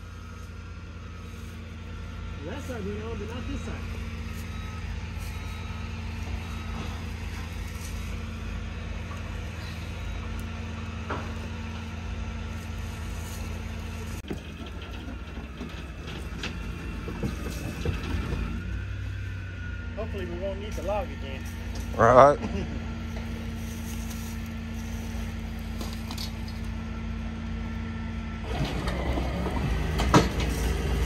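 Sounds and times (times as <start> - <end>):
truck engine running: 0.0 - 31.0
metal clanks and knocks: 14.2 - 18.6.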